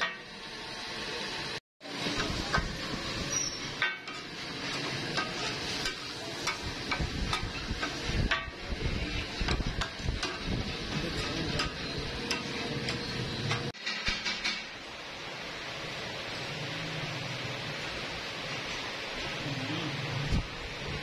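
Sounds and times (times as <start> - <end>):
frying hiss: 0.0 - 21.0
metal spatulas scraping a griddle: 2.0 - 14.6.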